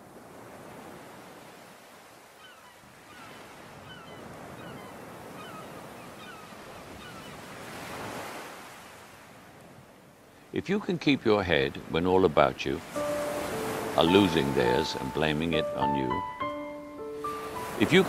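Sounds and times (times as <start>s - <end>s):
sea waves washing onto shore: 0.0s - 5.5s, 6.6s - 16.3s, 17.0s - 18.0s.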